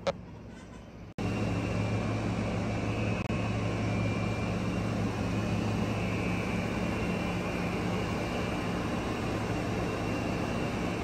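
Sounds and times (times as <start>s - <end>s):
faint high whine: 0.0s - 11.0s.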